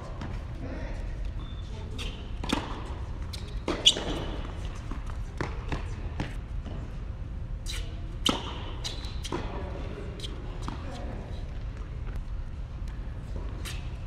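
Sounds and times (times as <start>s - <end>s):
tennis ball bouncing on court: 2.0s - 7.0s, 8.2s - 9.6s.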